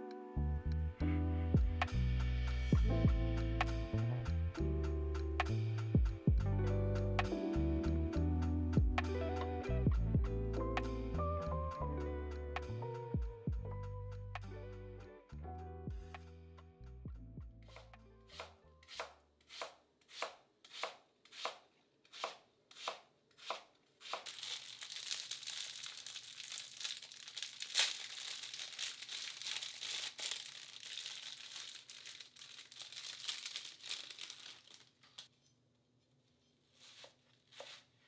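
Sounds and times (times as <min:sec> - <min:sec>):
plastic bag crinkling and tearing: 0:24.0 - 0:35.3.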